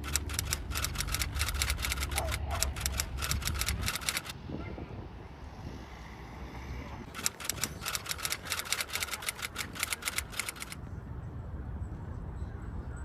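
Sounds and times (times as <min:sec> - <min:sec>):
fast run of sharp clicks: 0:00.0 - 0:04.4, 0:07.1 - 0:10.8.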